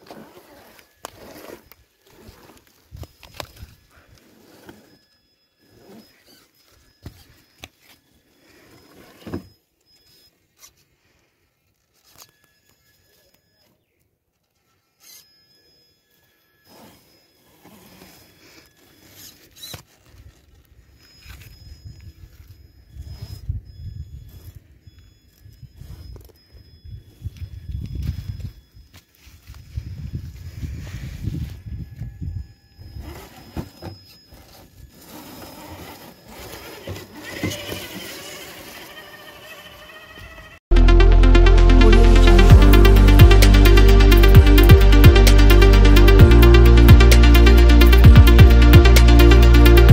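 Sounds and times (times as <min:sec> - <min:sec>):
electric drivetrain whining: 0:34.8 - 0:40.6.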